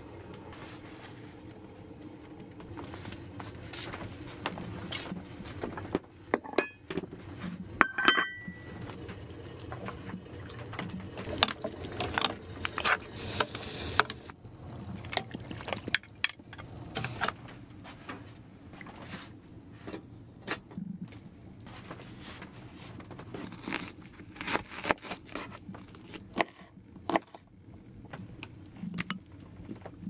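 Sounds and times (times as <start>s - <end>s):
spoon clinking on dish: 7.8s - 8.6s.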